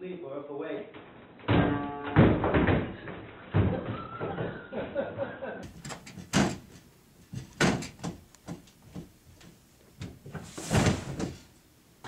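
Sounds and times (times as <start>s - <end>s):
knocks on wooden platform: 5.8s - 9.1s.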